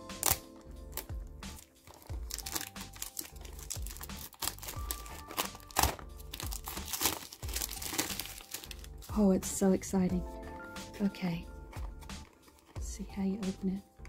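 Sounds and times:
cellophane crinkling and tearing: 0.0s - 9.1s, 11.6s - 12.9s
background music: 0.0s - 14.0s.

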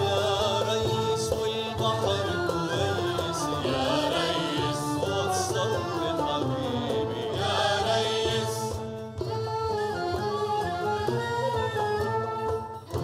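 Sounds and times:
man singing: 0.0s - 8.8s
violin and orchestra: 0.0s - 13.0s.

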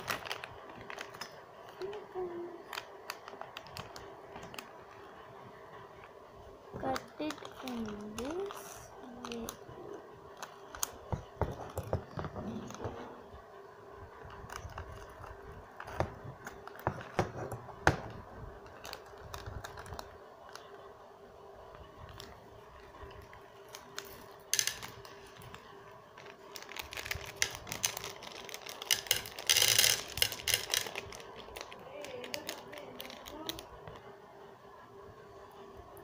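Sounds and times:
wrapper crinkling: 0.0s - 5.3s, 6.8s - 12.8s, 18.1s - 20.9s, 21.8s - 34.1s
candies clicking onto a plate: 23.1s - 33.9s.

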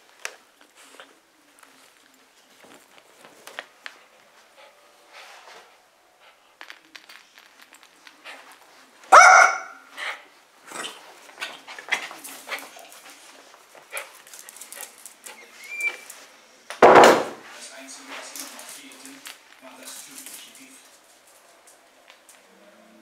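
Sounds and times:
small dog barking: 9.1s - 9.8s
light clicks and rustles: 11.1s - 16.3s, 18.0s - 22.4s.

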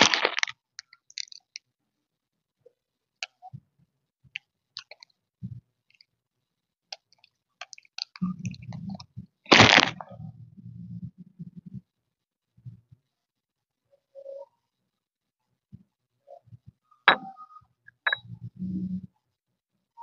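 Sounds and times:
mouth clicks and smacks: 4.4s - 5.2s, 6.9s - 10.1s.

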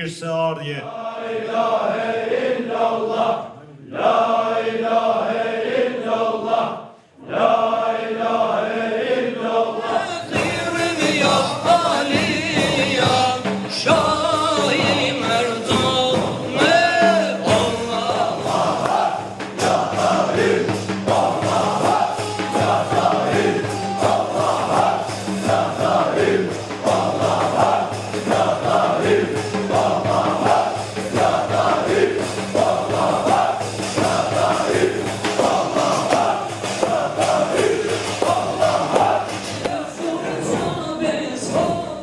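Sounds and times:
men chanting together: 0.0s - 42.0s
person singing into a microphone: 9.9s - 18.5s
hand cymbals and percussion beat: 10.1s - 42.0s.

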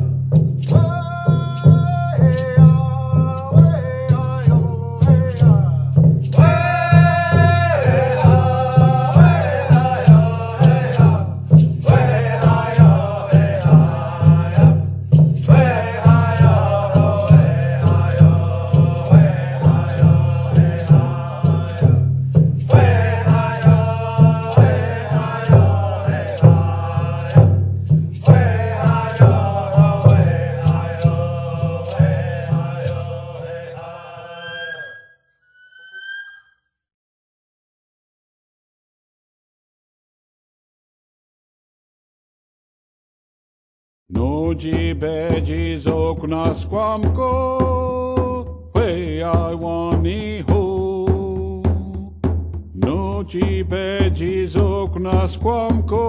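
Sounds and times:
steady drumbeat: 0.0s - 34.2s, 44.1s - 56.0s
person singing a chant: 6.4s - 11.2s, 11.8s - 14.8s, 15.5s - 22.0s, 22.7s - 27.5s, 28.2s - 34.8s.

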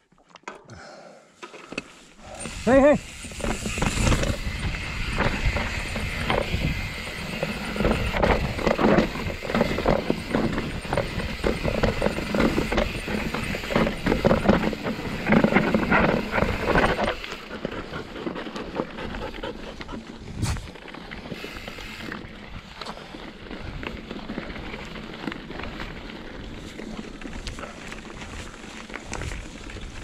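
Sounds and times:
bike rattling: 1.4s - 30.0s
bike tyres clattering over rocks: 2.2s - 19.1s, 20.3s - 30.0s
constant rumble: 2.2s - 21.2s.

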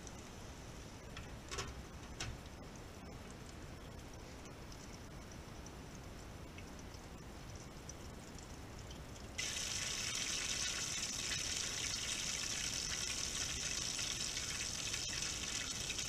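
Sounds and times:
oil sizzling in a deep fryer: 9.4s - 16.0s.

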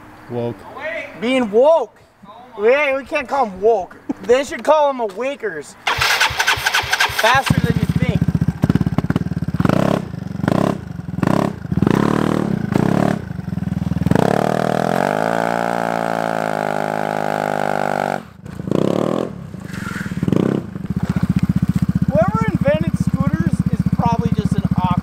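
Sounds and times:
scooter engine revving: 5.8s - 25.0s.

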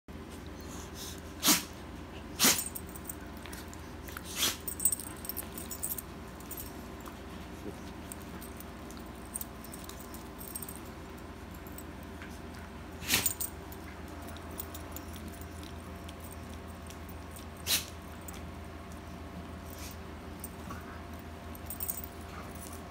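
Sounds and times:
steady low hum: 0.1s - 22.9s
dogs play-fighting: 0.3s - 22.9s
metal collar tag jingling: 4.6s - 7.1s, 8.0s - 12.1s, 13.1s - 15.6s, 21.5s - 22.9s.

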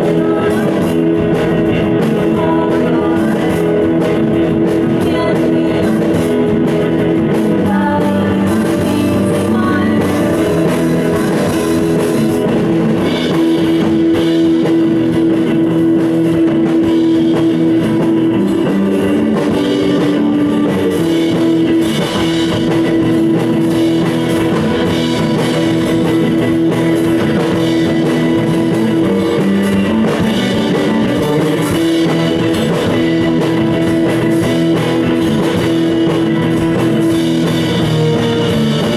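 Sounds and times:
sung vocals: 0.0s - 16.4s
bass guitar: 0.0s - 38.9s
drum kit: 0.0s - 38.9s
electric guitar: 0.0s - 38.9s
keyboard: 0.0s - 38.9s.

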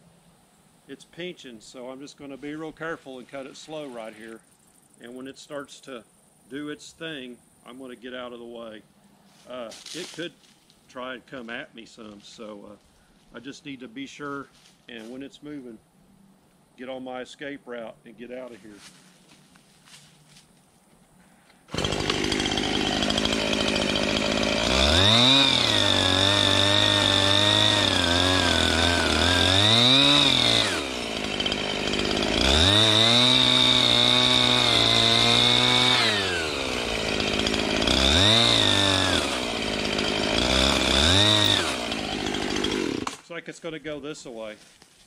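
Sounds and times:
chainsaw idling and revving: 21.7s - 43.2s.

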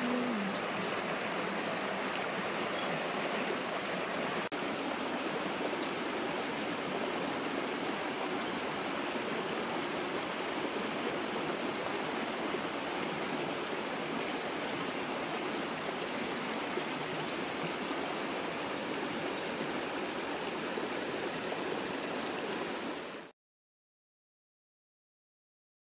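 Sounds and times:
stream flowing over rocks: 0.0s - 23.3s.

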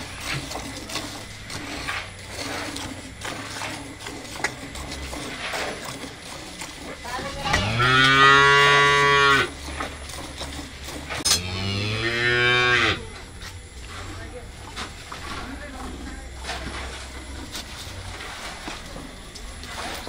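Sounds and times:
cow mooing: 7.4s - 9.5s, 11.3s - 13.1s.

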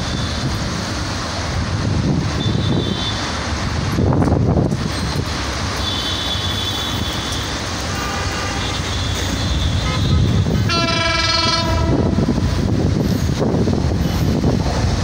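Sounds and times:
train horn: 5.8s - 12.5s.

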